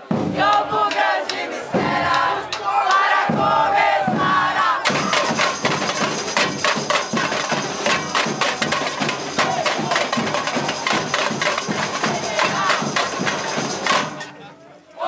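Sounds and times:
crowd shouting: 0.0 - 15.0
samba drum band playing: 3.2 - 14.4.

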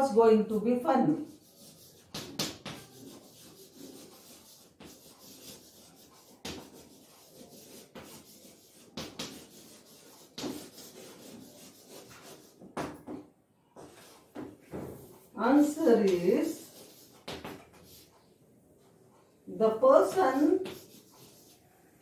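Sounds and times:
chalk scratching on a blackboard: 1.1 - 12.7, 13.8 - 14.5, 15.2 - 18.2, 20.0 - 21.8.

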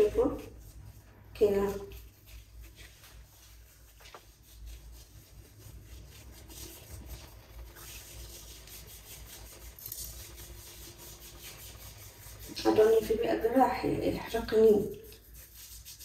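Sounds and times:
hands rubbing gritty scrub: 0.0 - 13.6, 14.2 - 16.0.

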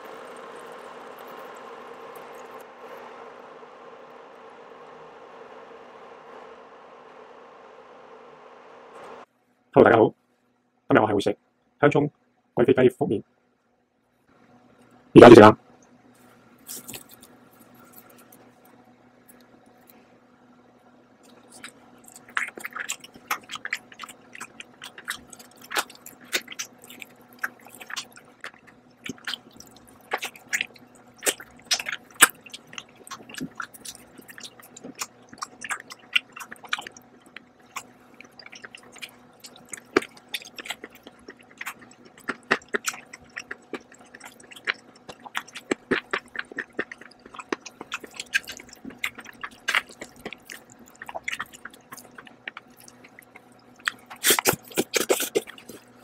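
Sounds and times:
person chewing with wet smacks: 0.0 - 2.7, 21.2 - 56.0.

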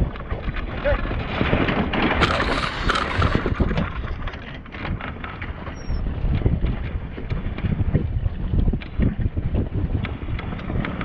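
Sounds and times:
water slapping against hull: 0.0 - 11.0
wind buffeting microphone: 0.0 - 11.0.

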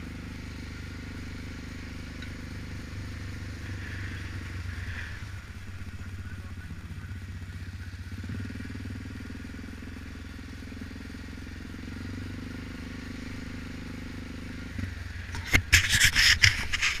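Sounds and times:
quad bike engine running: 0.0 - 17.0
rustling near microphone: 15.3 - 17.0.

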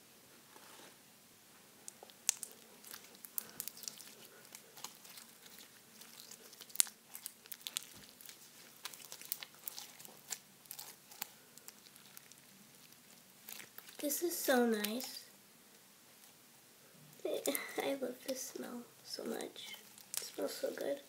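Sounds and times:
slime crackling and popping: 1.8 - 15.3, 19.5 - 21.0.

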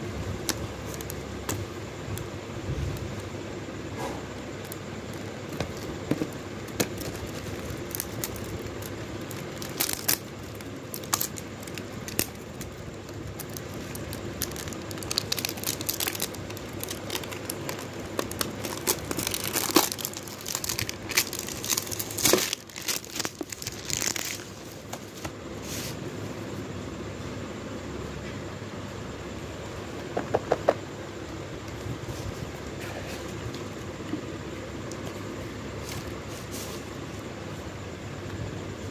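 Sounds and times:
steady low hum: 0.0 - 38.9
cardboard box crinkling and scraping: 14.6 - 25.2.

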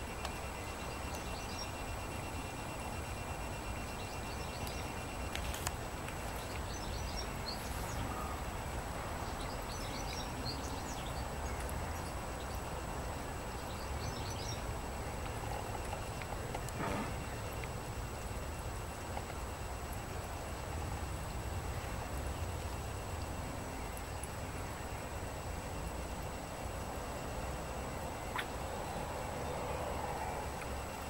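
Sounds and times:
faint bird chirps: 0.2 - 5.3, 9.2 - 16.2.

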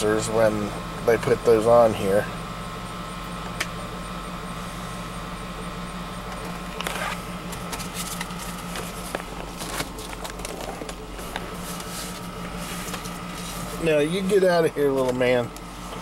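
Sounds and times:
air conditioner whine: 0.0 - 16.0
car engine idling: 0.0 - 16.0
clicks and rustling of handling: 6.3 - 13.8, 14.9 - 16.0.

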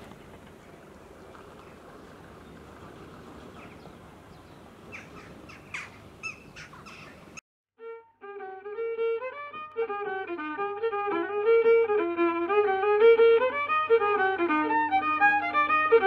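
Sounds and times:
outdoor background noise: 0.0 - 7.4
harsh bird calls: 0.2 - 7.4
fiddle music: 7.8 - 16.0.

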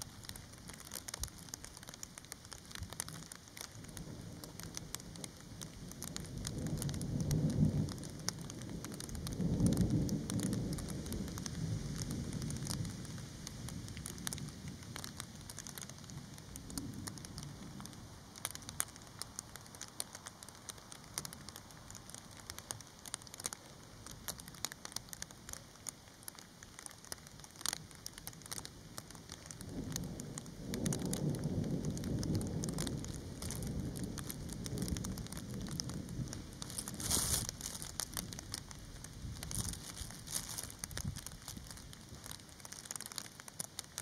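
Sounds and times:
light rain with dripping: 0.0 - 44.0
low thunder rumbles: 2.8 - 18.9, 29.4 - 43.3.

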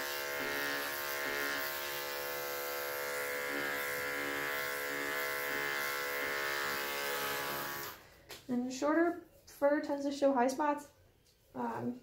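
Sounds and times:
electric clippers buzzing: 0.0 - 8.0.

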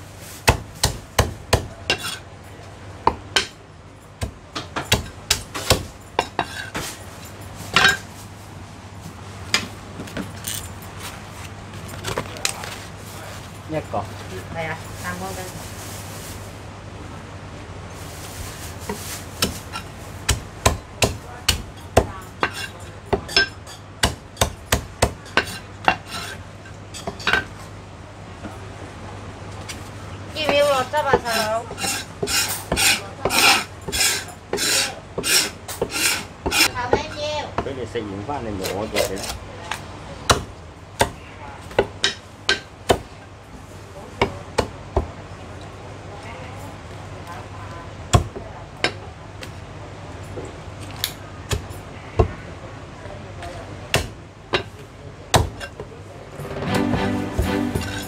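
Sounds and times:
cleaver chopping on wooden block: 0.5 - 2.1, 53.9 - 54.7, 55.4 - 55.6.

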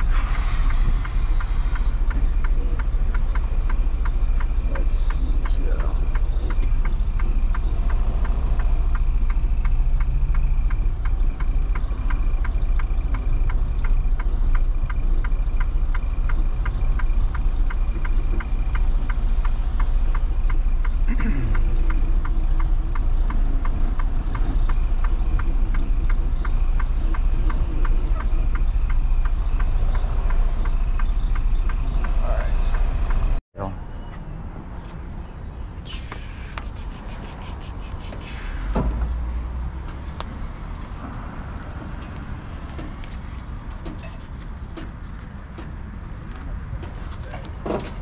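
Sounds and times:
rapid regular ticking: 0.0 - 33.4
truck engine running: 0.0 - 33.4.

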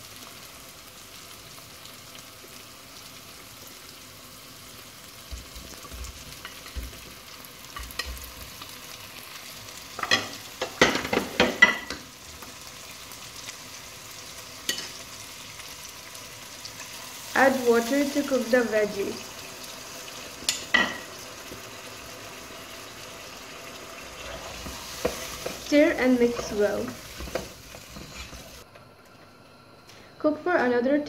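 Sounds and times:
food sizzling in a saucepan: 0.0 - 31.0
spatula scraping and stirring: 24.2 - 28.6.

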